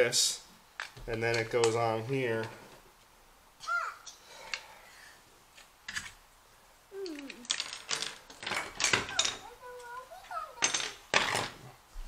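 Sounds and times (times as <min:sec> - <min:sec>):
plastic blocks clicking: 0:07.0 - 0:09.9.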